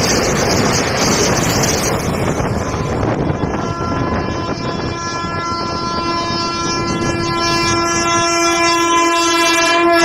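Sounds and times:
train rumbling: 0.0s - 10.0s
locomotive horn blast: 3.2s - 10.0s.

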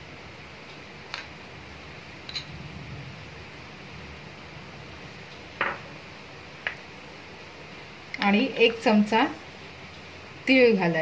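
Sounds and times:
faint steady background noise: 0.0s - 11.0s.

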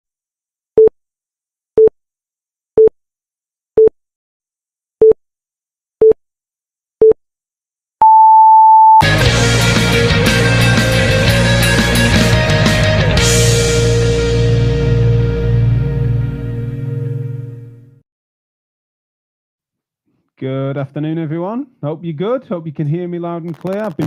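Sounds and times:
rock music: 9.0s - 17.9s.

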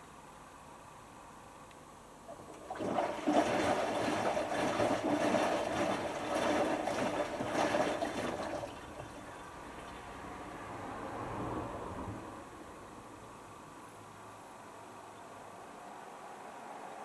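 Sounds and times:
water rushing into washing machine: 2.3s - 10.1s.

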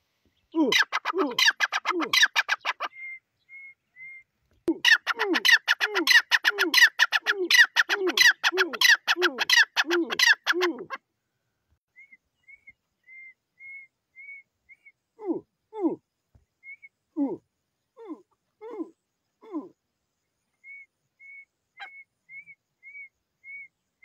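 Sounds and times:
francolin calling: 0.4s - 11.1s, 11.9s - 19.8s, 20.4s - 24.0s
low falling calls: 0.5s - 11.1s.

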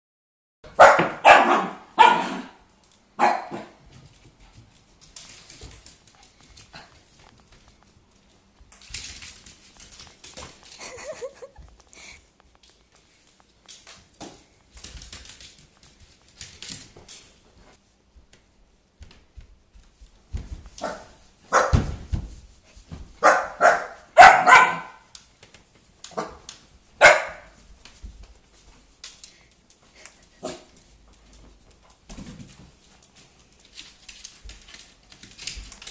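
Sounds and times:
puppy barking: 0.7s - 2.6s, 3.2s - 3.8s, 20.8s - 21.8s, 23.2s - 25.1s, 27.0s - 27.6s.

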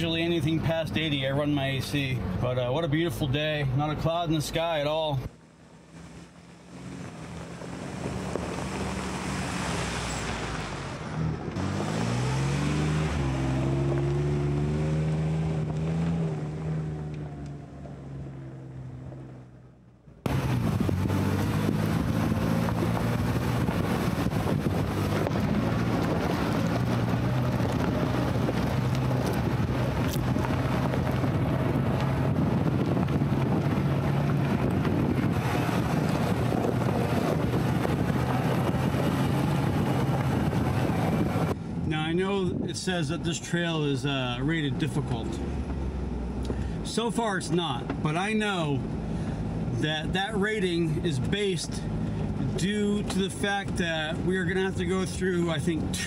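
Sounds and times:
vehicle engine driving: 0.0s - 56.0s
wind noise: 5.9s - 17.4s, 20.2s - 43.2s.

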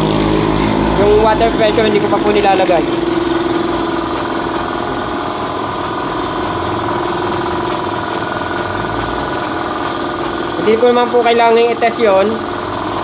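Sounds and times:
air compressor running: 0.0s - 13.0s.

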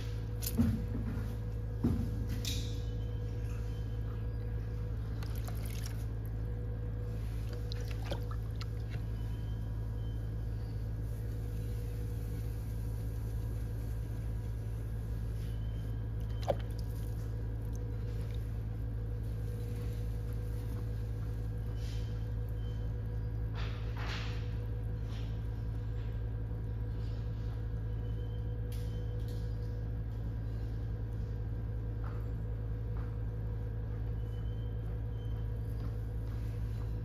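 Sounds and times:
pottery wheel motor humming: 0.0s - 37.0s
wet clay being worked: 4.9s - 10.0s, 10.8s - 21.7s.

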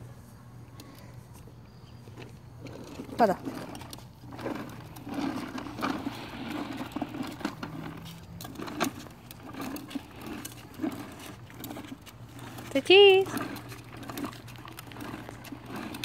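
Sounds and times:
plastic wheels rolling on concrete: 0.0s - 16.0s.

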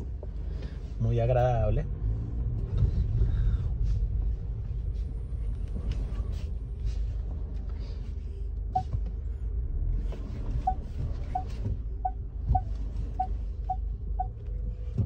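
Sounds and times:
car engine rumbling: 0.0s - 15.0s
short faint beep: 10.6s - 14.4s.

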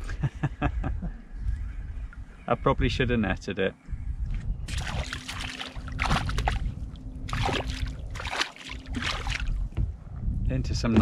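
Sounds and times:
fish splashing in water: 4.7s - 6.7s, 7.3s - 9.6s.

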